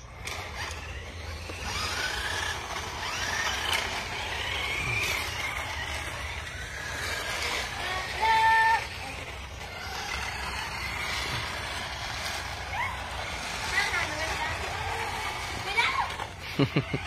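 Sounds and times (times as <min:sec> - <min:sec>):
small electric motor whining: 0:00.0 - 0:17.0.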